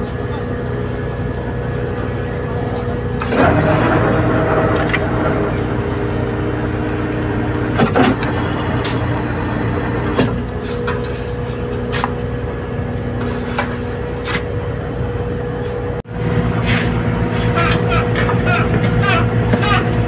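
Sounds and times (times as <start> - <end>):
boat engine running: 0.0 - 10.6, 14.8 - 20.0.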